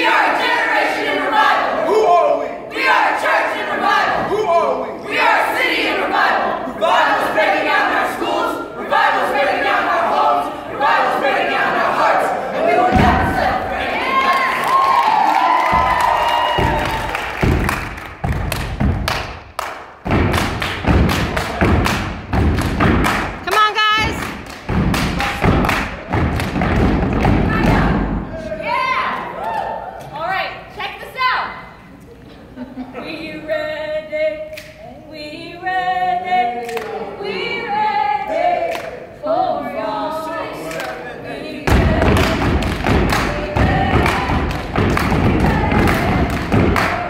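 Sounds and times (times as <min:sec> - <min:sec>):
group singing without instruments: 0:00.0 - 0:18.1, 0:32.6 - 0:47.0
feet stomping on stage floor: 0:12.9 - 0:13.6, 0:15.5 - 0:23.4, 0:24.0 - 0:28.3, 0:41.7 - 0:47.0
hand claps and slaps: 0:15.4 - 0:27.8, 0:34.5 - 0:34.8, 0:36.6 - 0:36.9, 0:38.7 - 0:39.0, 0:40.7 - 0:41.0, 0:41.7 - 0:47.0.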